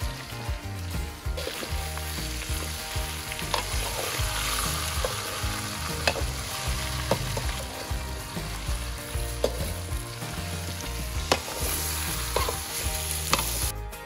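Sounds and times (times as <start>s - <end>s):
vegetables sizzling in oil: 0.0s - 13.7s
metal tongs clicking on pan: 3.4s - 7.8s, 9.4s - 9.8s, 11.3s - 13.7s.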